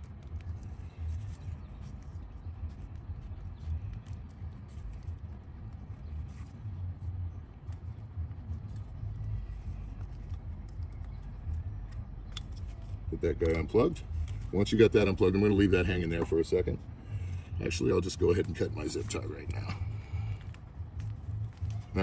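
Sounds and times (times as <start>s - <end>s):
steady low rumble: 0.0s - 22.0s
connector clicks and rustles: 7.6s - 15.5s.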